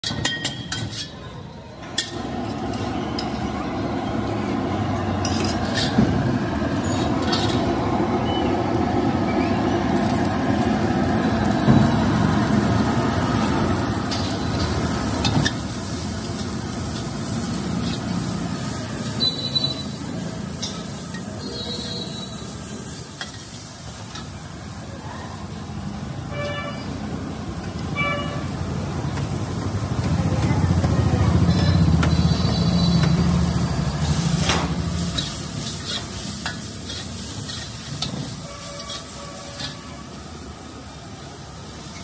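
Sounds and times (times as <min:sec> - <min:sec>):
metal ladle scraping wok: 0:00.0 - 0:01.3, 0:05.2 - 0:07.8, 0:13.4 - 0:24.4, 0:31.4 - 0:40.2
vegetables sizzling in hot oil: 0:02.0 - 0:42.0.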